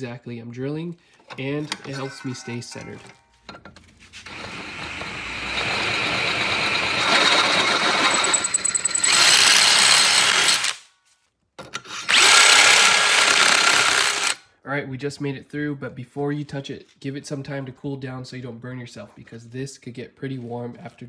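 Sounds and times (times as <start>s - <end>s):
drill boring through metal: 4.2s - 10.8s, 12.0s - 14.4s.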